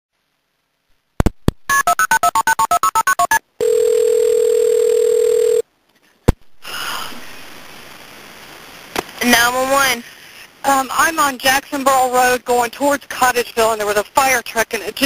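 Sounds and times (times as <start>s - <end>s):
telephone line hiss: 1.7s - 5.6s
touch-tone dialing: 1.7s - 5.6s
telephone ringing tone: 1.8s - 5.6s.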